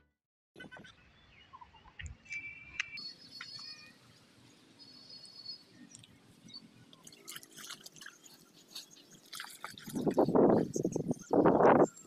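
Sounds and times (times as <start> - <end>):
faint high chirps: 1.3 - 7.2.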